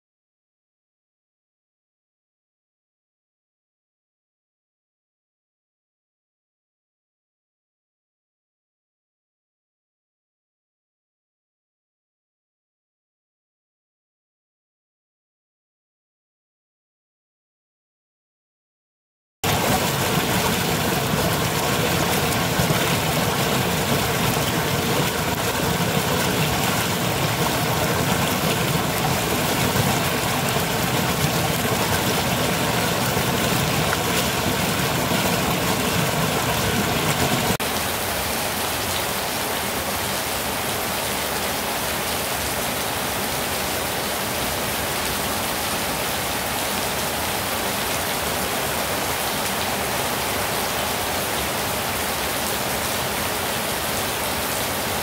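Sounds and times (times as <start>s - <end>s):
rain on wet paving stones: 19.4s - 55.0s
waterfall pouring into pool: 19.4s - 55.0s.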